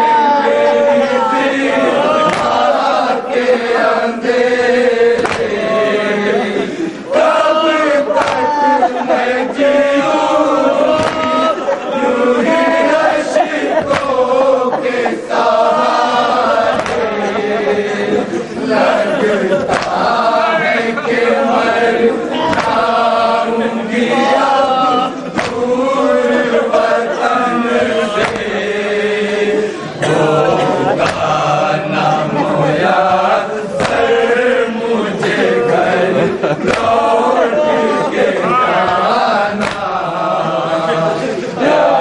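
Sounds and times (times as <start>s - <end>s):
lead reciter's voice: 0.0s - 42.0s
men chanting a lament: 0.0s - 42.0s
hands beating chests: 2.0s - 3.0s, 4.4s - 5.8s, 7.2s - 9.7s, 10.8s - 11.6s, 13.5s - 17.5s, 19.6s - 20.3s, 22.4s - 23.3s, 25.3s - 25.8s, 28.1s - 28.7s, 30.1s - 31.6s, 32.9s - 34.3s, 36.6s - 37.2s, 38.8s - 40.1s.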